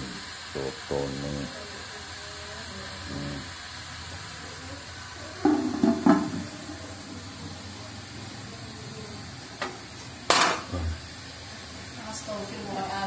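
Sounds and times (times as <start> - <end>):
pot lids clattering: 5.4 - 6.4, 10.3 - 10.7.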